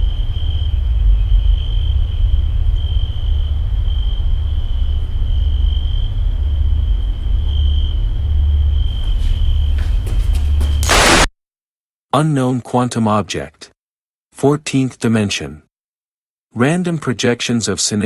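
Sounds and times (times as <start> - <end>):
deep continuous rumble: 0.0 - 10.6
crickets trilling: 0.0 - 11.2.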